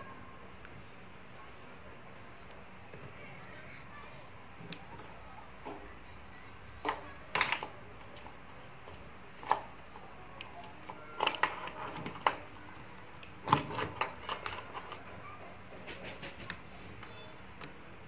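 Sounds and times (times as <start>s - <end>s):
wires rustling on plastic panel: 6.7s - 17.8s.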